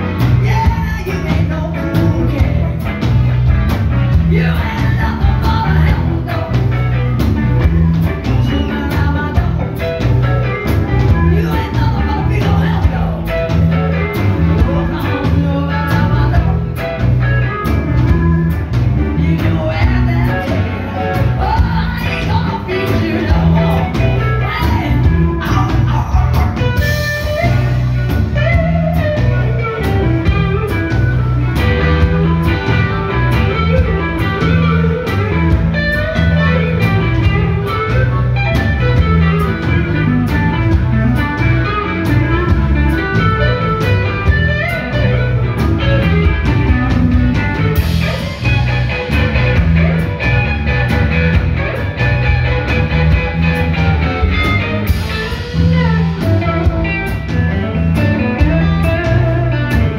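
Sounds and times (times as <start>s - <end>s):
drums and bass groove: 0.0s - 59.9s
electric guitar: 0.0s - 59.9s
lead electric guitar: 0.0s - 59.9s
woman singing: 0.2s - 3.0s, 4.1s - 7.0s, 8.2s - 10.2s, 11.0s - 13.5s, 14.4s - 17.1s, 19.0s - 26.5s.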